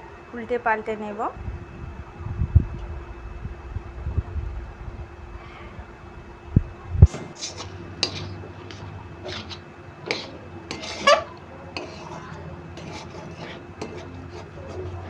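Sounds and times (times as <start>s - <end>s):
metal spatula scraping a pan: 7.3s - 15.0s.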